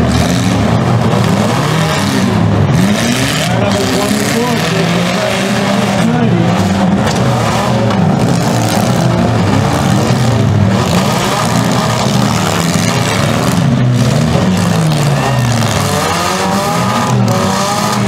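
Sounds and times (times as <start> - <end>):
car engines revving: 0.0 - 18.0.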